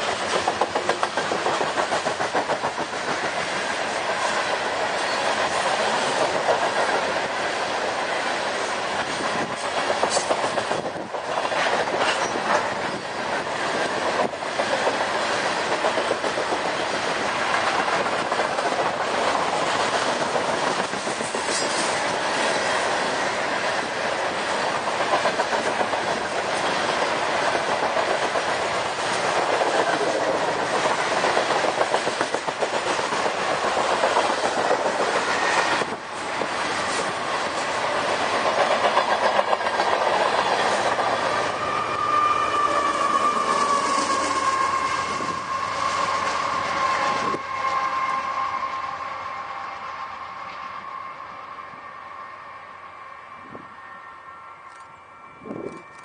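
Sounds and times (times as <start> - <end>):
wheels clickety-clack on rail joints: 0.0 - 49.0
train wheels rumbling on rail: 0.0 - 56.0.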